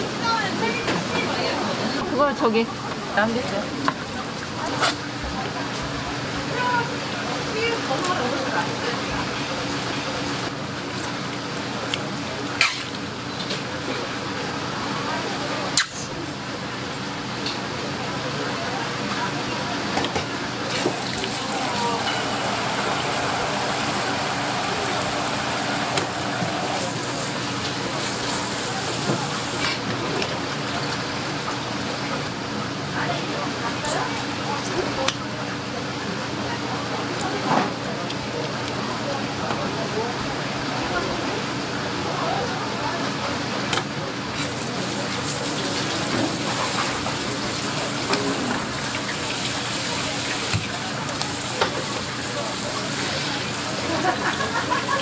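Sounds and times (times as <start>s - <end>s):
faucet water spraying: 20.7s - 29.6s.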